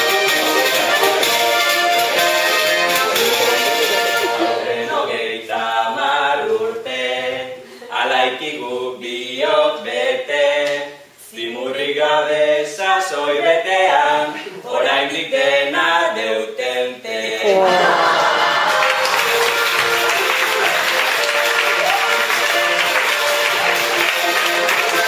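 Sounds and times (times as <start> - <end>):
group singing in chorus: 0.0 - 25.0.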